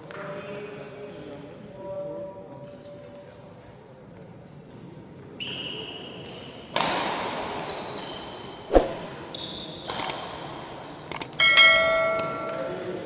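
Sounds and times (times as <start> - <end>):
rushing swish: 8.7 - 9.1
quick clicks: 10.0 - 10.2.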